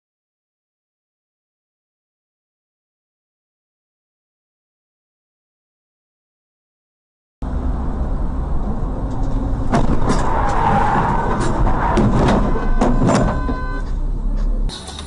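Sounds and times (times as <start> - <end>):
vehicle road rumble: 7.4 - 15.0
sharp crash bangs and knocks: 9.7 - 13.8.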